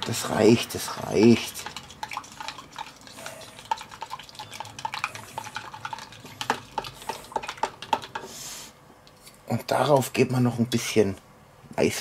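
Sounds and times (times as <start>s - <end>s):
metal spoon stirring in plastic cup: 0.0s - 8.3s.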